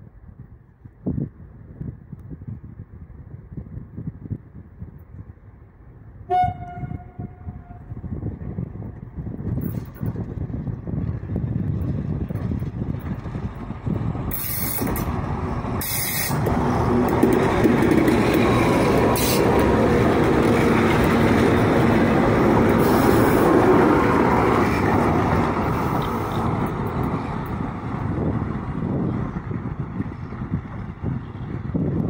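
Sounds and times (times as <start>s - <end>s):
diesel locomotive engines running: 5.4s - 32.0s
wheels rolling on rails: 8.6s - 32.0s.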